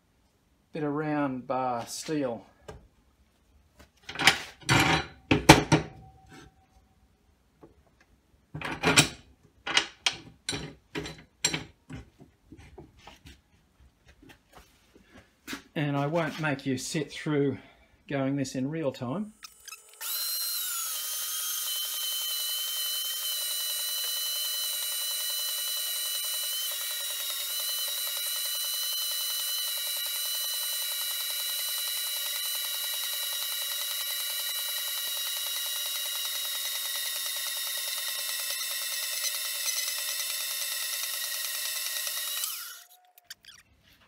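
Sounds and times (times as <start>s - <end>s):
bandsaw cutting steel high whine: 19.4s - 43.6s.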